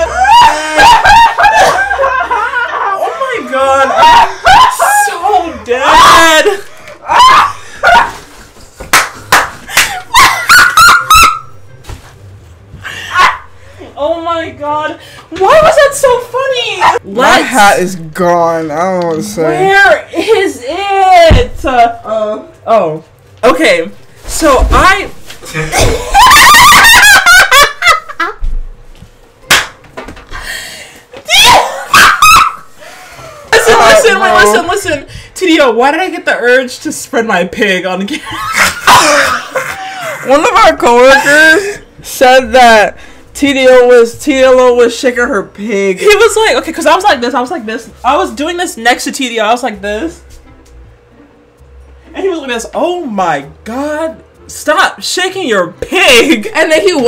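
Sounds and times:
woman laughing loudly: 0.2 - 3.0, 25.6 - 28.4, 38.2 - 40.4
sharp smack: 29.5 - 29.8.

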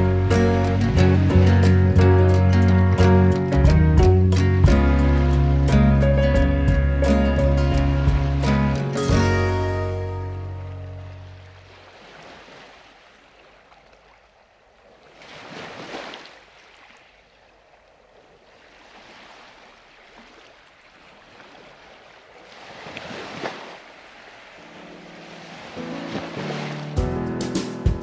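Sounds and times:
sea waves washing: 0.0 - 27.1.

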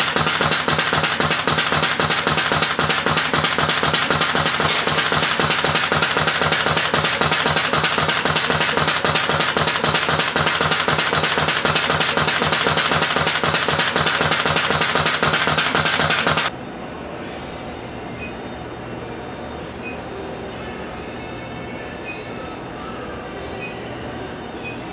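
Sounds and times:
pneumatic cutter clattering: 0.0 - 16.5
machine steady hum: 0.0 - 24.9.

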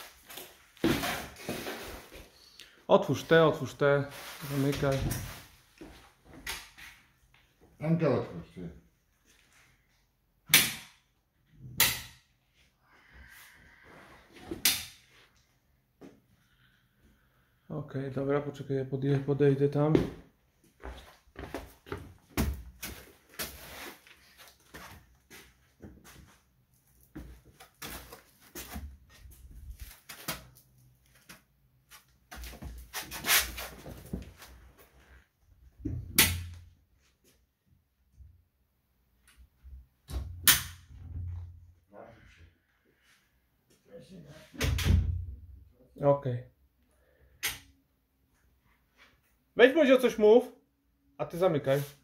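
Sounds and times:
door closing with a thud: 44.6 - 45.3.

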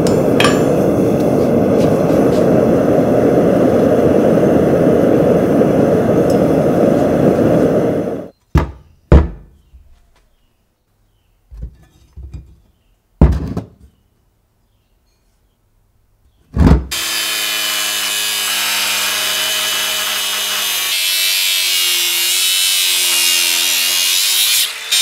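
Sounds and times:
loud rushing noise: 0.0 - 8.3.

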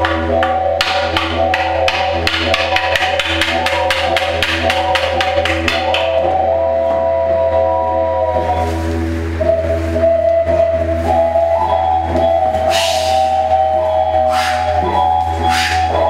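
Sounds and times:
wood-block-like clicks: 0.0 - 6.3
held musical tones: 0.0 - 16.0
low drone: 0.0 - 16.0.

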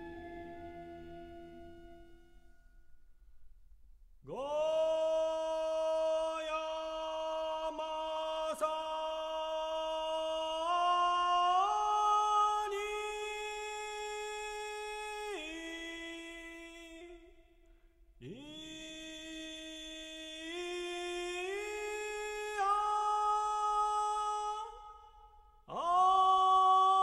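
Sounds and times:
person chanting long notes: 0.0 - 2.4.

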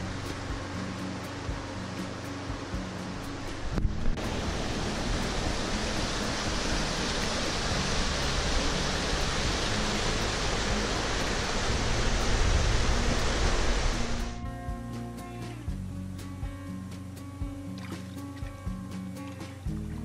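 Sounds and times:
rapids rushing over boulders: 0.0 - 14.5.

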